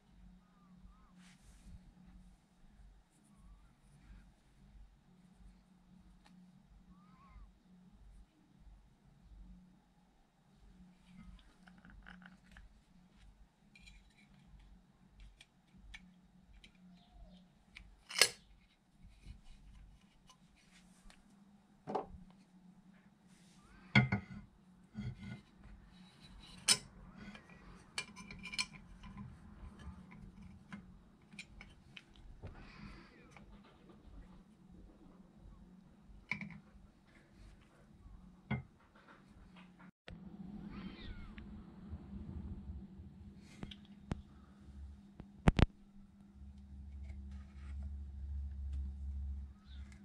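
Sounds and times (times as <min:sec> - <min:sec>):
tools clicking and clinking: 0:17.8 - 0:18.4, 0:26.3 - 0:32.2.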